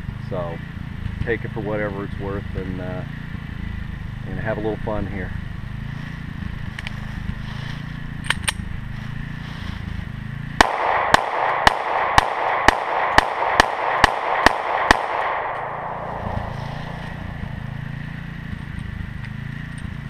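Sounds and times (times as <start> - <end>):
pistol shots: 10.6 - 18.4.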